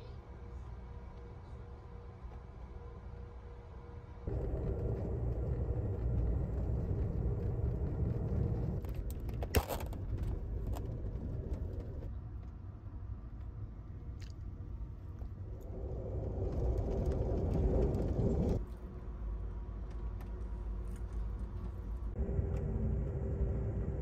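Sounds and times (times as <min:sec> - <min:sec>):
train car rumbling: 0:01.3 - 0:13.2, 0:15.2 - 0:24.0.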